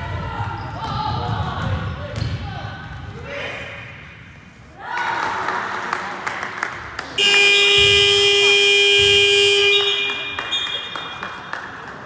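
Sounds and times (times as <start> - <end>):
scoreboard buzzer blast: 7.2 - 10.1.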